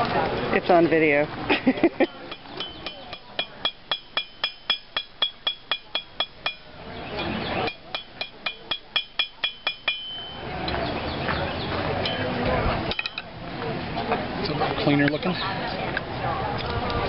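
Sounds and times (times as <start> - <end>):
hammer striking iron on anvil: 2.3 - 6.7, 7.6 - 10.4.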